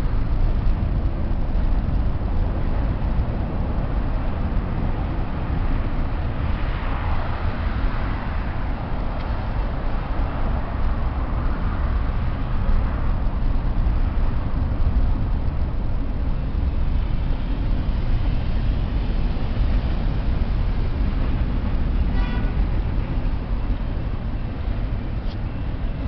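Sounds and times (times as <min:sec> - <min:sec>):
road traffic rumble: 0:00.0 - 0:26.0
freight train rolling by: 0:09.5 - 0:26.0.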